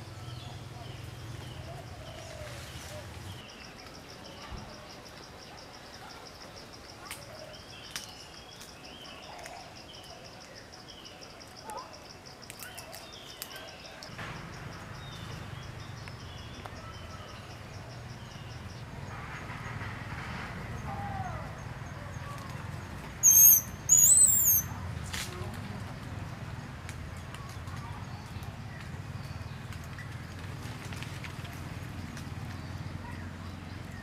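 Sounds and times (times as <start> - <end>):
insect trilling: 23.2 - 24.7.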